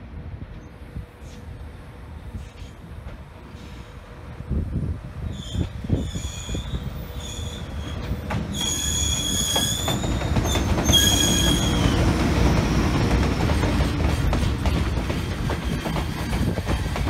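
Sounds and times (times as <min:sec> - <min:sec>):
freight train rumbling past: 0:00.0 - 0:17.0
train wheels squealing: 0:05.2 - 0:13.2, 0:15.1 - 0:16.5.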